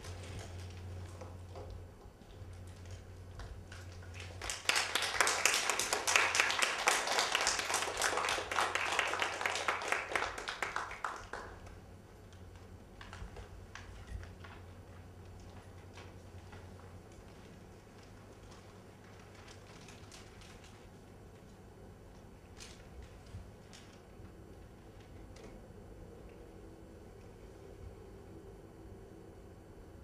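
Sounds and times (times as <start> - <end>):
audience clapping: 3.4 - 14.6.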